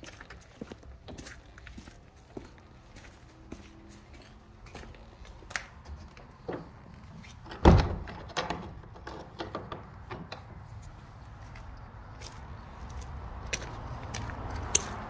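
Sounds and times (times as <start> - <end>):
door slamming shut: 7.4 - 8.8
door and lock clicking: 7.4 - 10.5.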